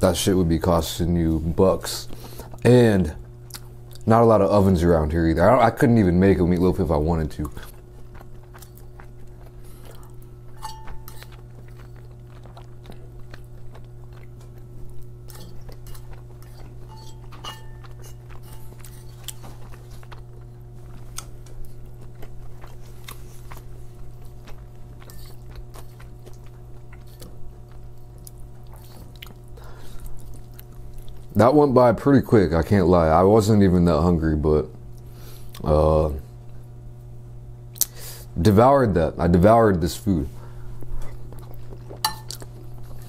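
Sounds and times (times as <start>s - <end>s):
steady low hum: 0.0s - 43.0s
person chewing soft food: 2.0s - 4.1s, 7.3s - 31.4s, 34.9s - 37.1s, 40.4s - 43.0s
fork clicking and scraping plates: 10.6s - 12.0s, 15.2s - 19.4s.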